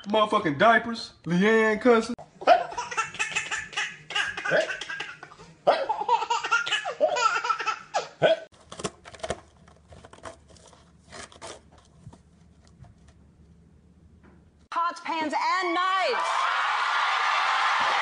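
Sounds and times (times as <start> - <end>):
toddler laughing: 2.4 - 8.4.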